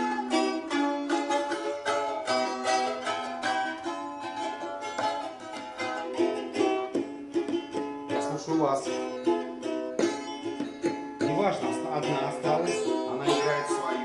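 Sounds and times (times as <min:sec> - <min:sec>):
balalaikas strummed and plucked: 0:00.0 - 0:14.0.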